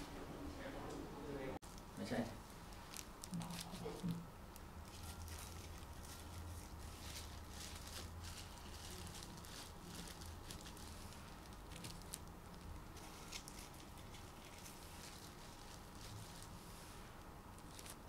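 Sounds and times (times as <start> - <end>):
low steady hum: 0.0 - 18.0
soft dough squishes: 1.6 - 18.0.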